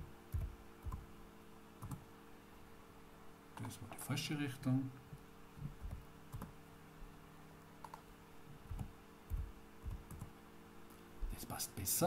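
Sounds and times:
faint steady hum: 0:00.0 - 0:12.0
computer keyboard typing: 0:00.3 - 0:01.0, 0:01.8 - 0:02.0, 0:05.8 - 0:06.5, 0:08.7 - 0:10.3
mouse clicks: 0:05.8 - 0:06.6, 0:07.8 - 0:08.0, 0:08.7 - 0:10.3.

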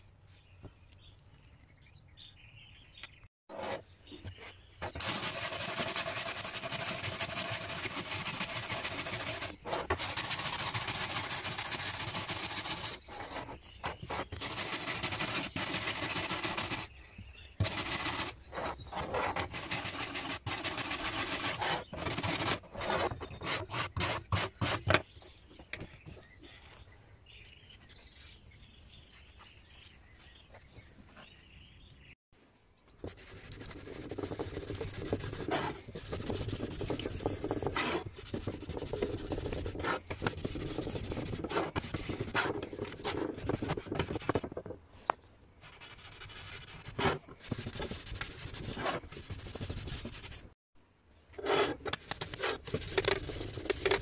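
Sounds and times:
bristle brush scrubbing metal: 0:04.9 - 0:13.1, 0:14.3 - 0:16.9, 0:17.6 - 0:18.4.

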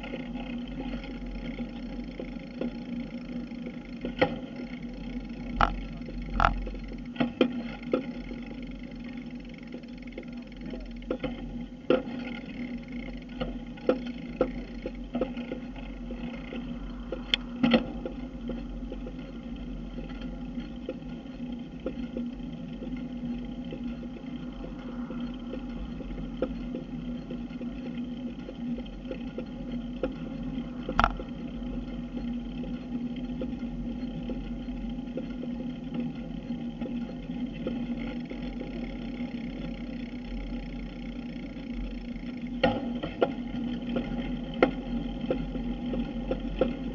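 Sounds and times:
bicycle road and wind noise: 0:00.0 - 0:46.9
constant low hum: 0:00.0 - 0:46.9
sharp clicks and knocks: 0:05.4 - 0:08.1, 0:13.3 - 0:21.2, 0:25.5 - 0:32.8.

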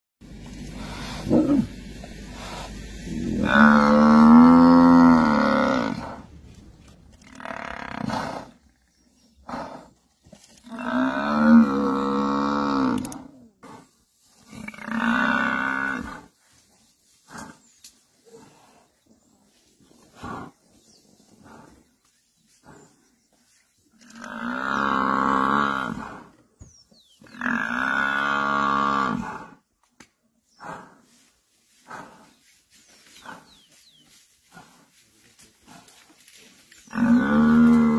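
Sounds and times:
buffalo bellowing: 0:00.5 - 0:06.3, 0:36.8 - 0:37.9.

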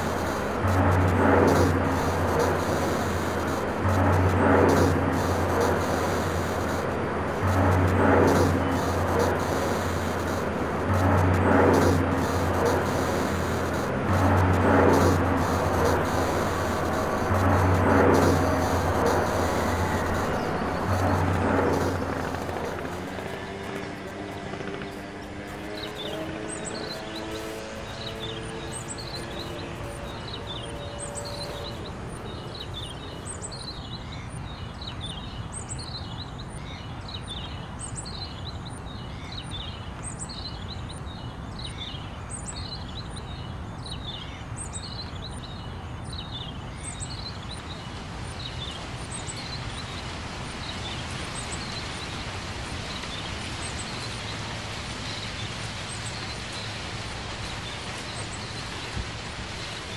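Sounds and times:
rushing outdoor noise: 0:00.0 - 0:59.9.

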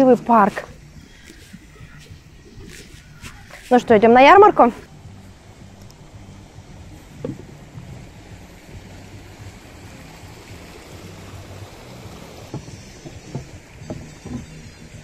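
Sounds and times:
low outdoor rumble: 0:00.0 - 0:15.0
soft knocks: 0:07.1 - 0:08.0, 0:12.4 - 0:14.9.

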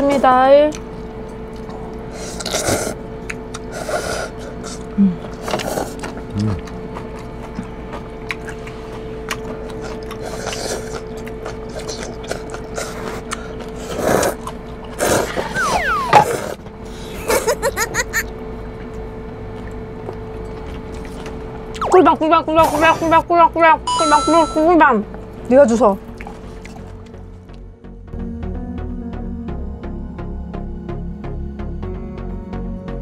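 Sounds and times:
steady hum: 0:00.0 - 0:33.0
people slurping noodles: 0:02.2 - 0:03.0, 0:03.6 - 0:06.7, 0:08.4 - 0:17.5
burst of laughter: 0:17.2 - 0:18.3.

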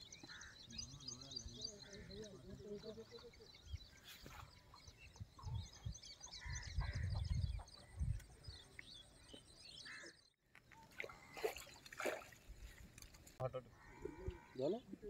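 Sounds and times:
birds chirping: 0:00.0 - 0:15.0
wind rumble on microphone: 0:05.0 - 0:08.6.

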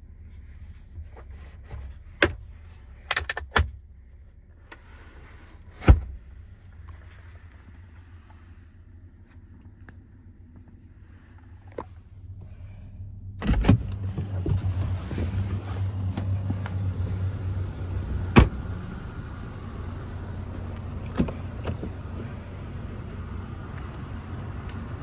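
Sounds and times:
low steady hum: 0:00.0 - 0:25.0
car door opening: 0:13.4 - 0:16.8, 0:18.2 - 0:18.7, 0:20.9 - 0:22.3
car door shutting thud: 0:18.3 - 0:18.6.

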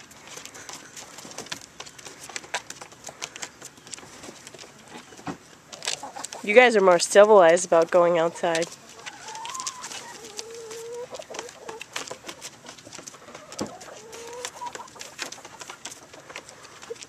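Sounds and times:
chickens clucking: 0:00.0 - 0:17.0
drawn-out wavering chicken calls: 0:08.2 - 0:17.0.

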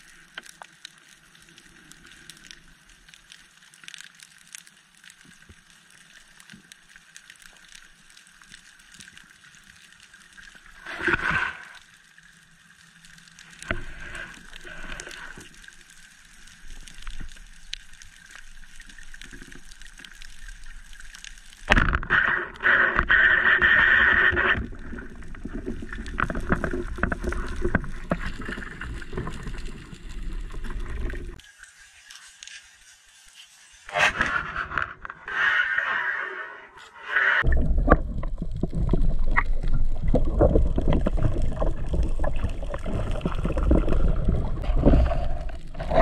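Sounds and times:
quiet water noise: 0:00.0 - 0:46.0
underwater rushing noise: 0:06.4 - 0:31.5, 0:33.8 - 0:46.0
line running out scraping: 0:13.4 - 0:15.9, 0:18.9 - 0:46.0.

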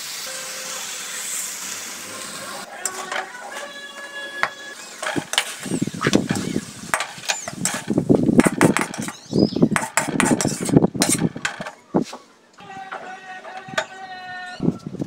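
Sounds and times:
spatula scraping a metal wok: 0:01.9 - 0:09.2, 0:09.8 - 0:11.8.

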